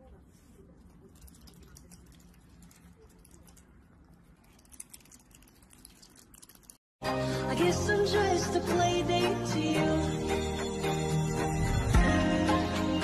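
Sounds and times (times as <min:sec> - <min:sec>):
otter chewing food: 0:00.8 - 0:06.8.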